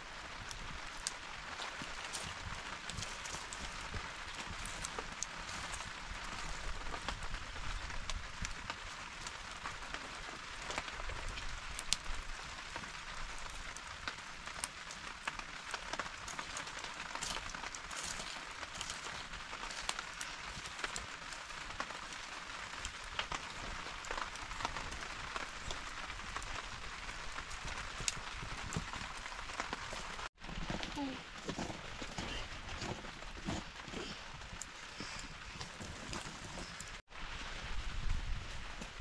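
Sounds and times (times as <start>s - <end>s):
steady rain hiss: 0.0s - 33.0s, 33.7s - 39.0s
sharp raindrop ticks: 0.2s - 30.3s.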